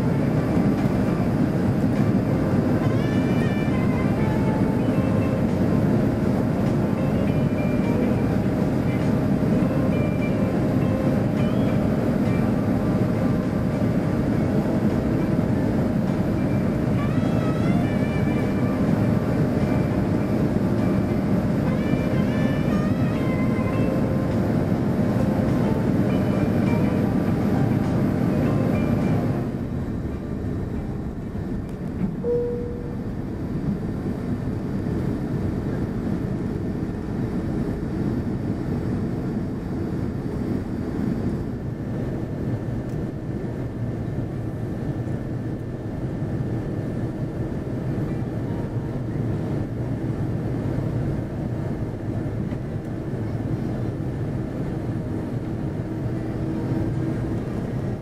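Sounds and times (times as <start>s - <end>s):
airliner cabin rumble: 0.0s - 58.0s
brief single tone: 32.2s - 33.1s.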